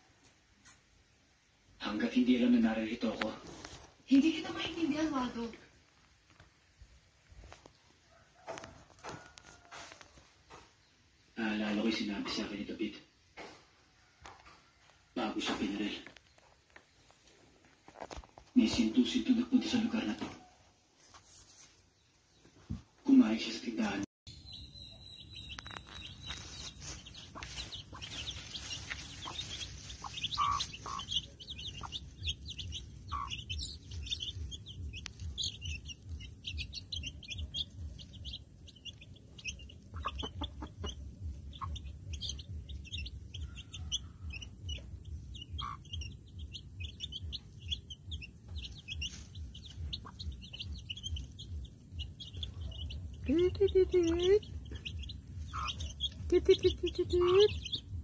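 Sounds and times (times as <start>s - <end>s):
chicks peeping: 21.1s - 58.0s
hen clucking: 25.4s - 58.0s.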